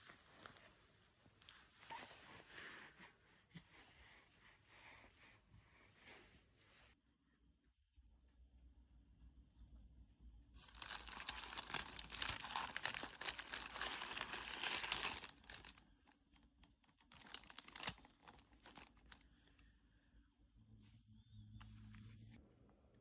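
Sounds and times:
paper wrapper crinkling: 10.6 - 19.4.

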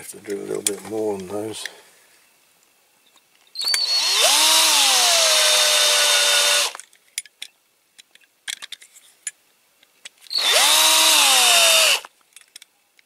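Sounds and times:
electric drill drilling metal: 3.6 - 6.8, 10.3 - 12.1.

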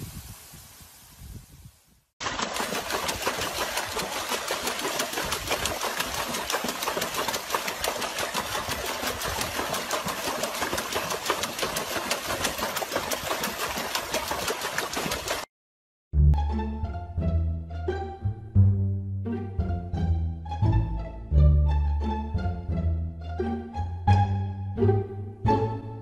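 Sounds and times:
dog splashing in water: 2.2 - 15.5.

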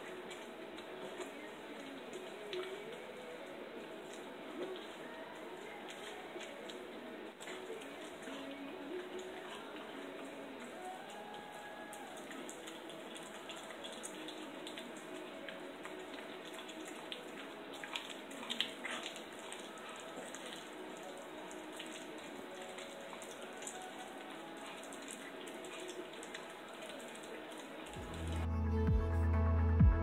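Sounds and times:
ambient electronic music: 12.1 - 30.0.

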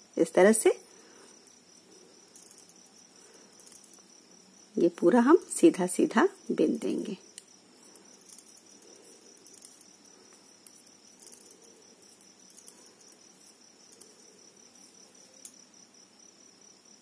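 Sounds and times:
knitting needles clicking: 2.3 - 4.1, 4.9 - 15.6.

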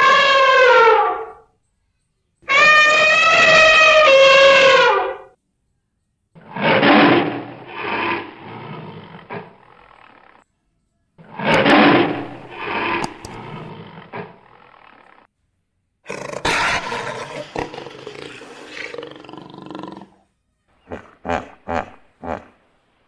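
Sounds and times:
big cat roaring: 6.4 - 10.4, 16.1 - 20.2.

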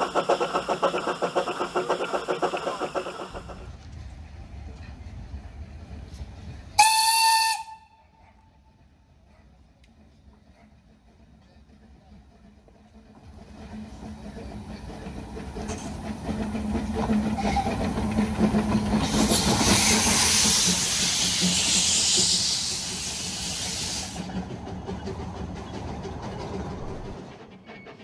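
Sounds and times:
steam locomotive passing: 0.0 - 28.0
loud steam hiss: 18.9 - 24.3.

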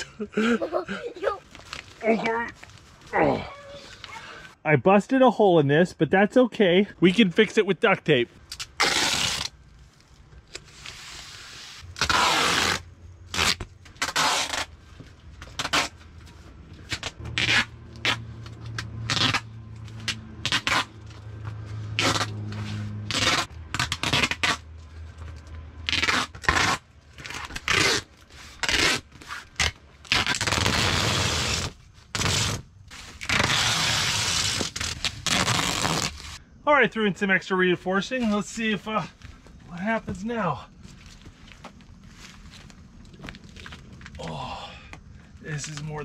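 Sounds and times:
tape sheet crinkling: 8.4 - 21.2, 22.0 - 36.4
duct tape ripping off roll: 8.5 - 14.8, 15.4 - 16.1, 16.8 - 21.2, 21.9 - 24.7, 25.8 - 36.4.

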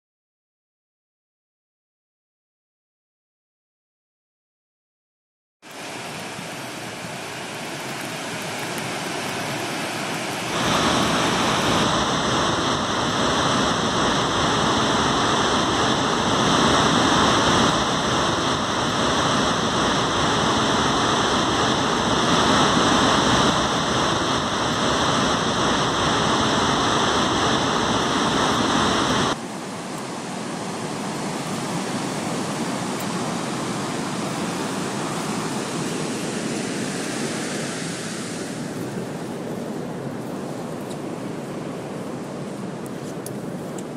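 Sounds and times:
waterfall rushing: 5.7 - 38.7.

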